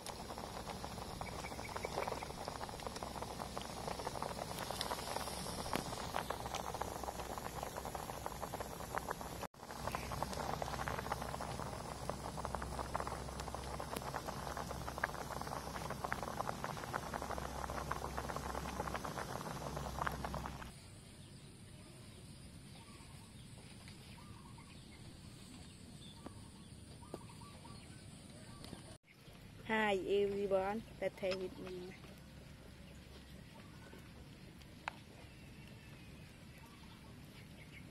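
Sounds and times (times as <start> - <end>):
water boiling in pot: 0.0 - 20.8, 29.3 - 37.9
faint bird chirps: 1.1 - 2.5, 18.5 - 29.4, 35.0 - 37.9.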